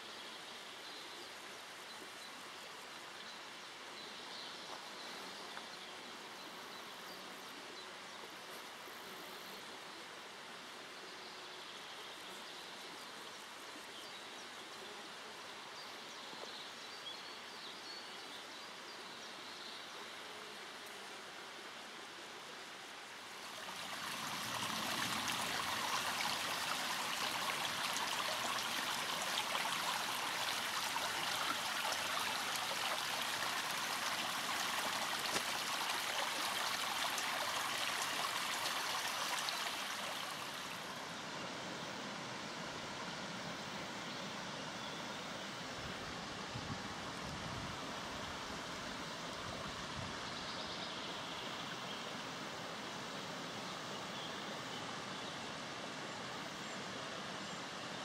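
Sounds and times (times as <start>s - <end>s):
stream babbling over rocks: 23.1s - 41.1s.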